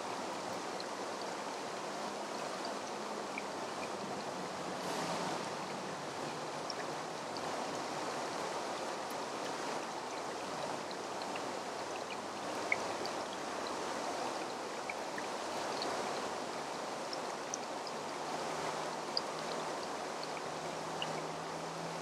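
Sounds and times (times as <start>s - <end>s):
flowing water: 0.0s - 22.0s.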